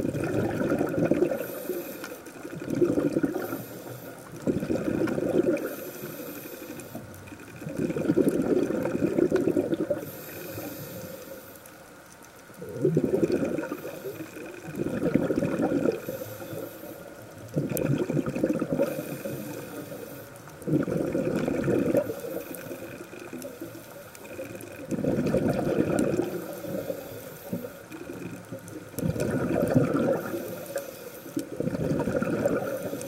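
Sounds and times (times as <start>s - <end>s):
exhaled bubbles underwater: 0.0s - 11.0s, 12.5s - 33.0s
regulator hiss: 1.2s - 2.6s, 3.3s - 4.4s, 5.4s - 7.5s, 9.9s - 11.9s, 13.5s - 14.7s, 15.8s - 17.5s, 18.8s - 20.6s, 21.9s - 24.6s, 26.2s - 28.3s, 30.2s - 31.6s.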